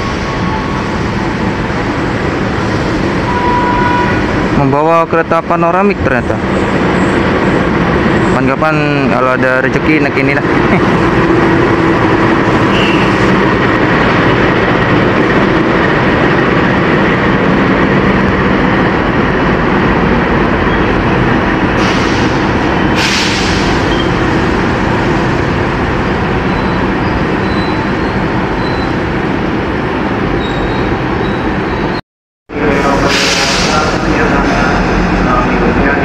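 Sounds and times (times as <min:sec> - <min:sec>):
diesel locomotive idling: 0:00.0 - 0:31.4, 0:32.6 - 0:36.0.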